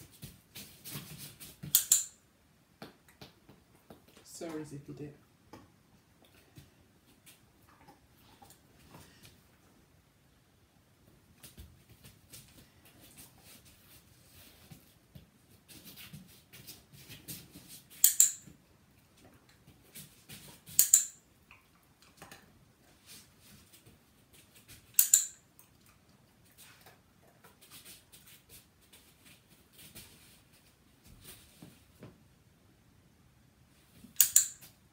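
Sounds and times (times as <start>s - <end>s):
dog-training clicker double click: 34.2s - 34.6s.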